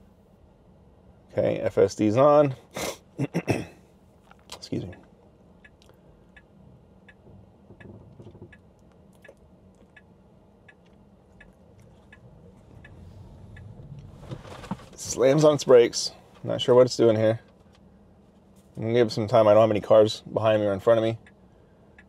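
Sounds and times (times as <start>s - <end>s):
faint road noise: 0.0s - 22.0s
turn signal ticking: 4.5s - 15.3s, 20.8s - 22.0s.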